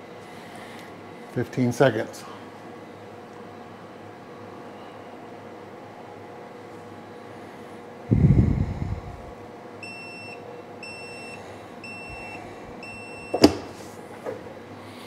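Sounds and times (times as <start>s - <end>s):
timer beeping: 9.8s - 13.4s.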